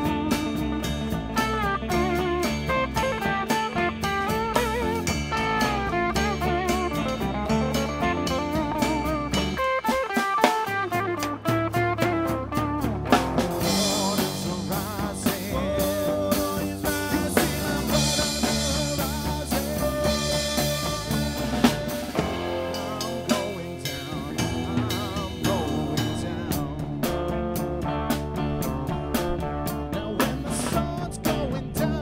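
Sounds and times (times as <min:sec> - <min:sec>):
drum kit steady beat: 0:00.0 - 0:32.0
sustained bent guitar notes: 0:00.0 - 0:32.0.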